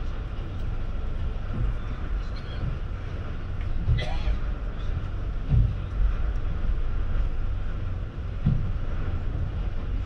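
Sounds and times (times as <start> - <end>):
ferry engines droning: 0.0 - 10.0
short low thuds: 5.4 - 5.9, 8.3 - 9.5.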